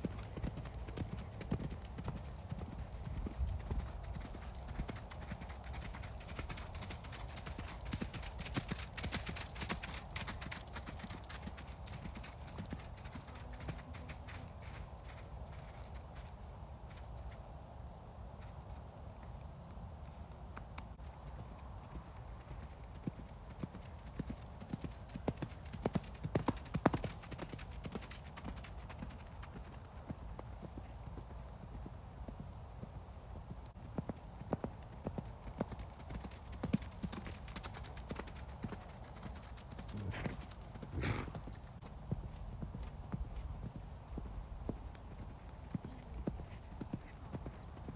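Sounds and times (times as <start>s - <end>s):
horse hoofbeats on sand: 0.0s - 17.4s, 33.9s - 47.9s.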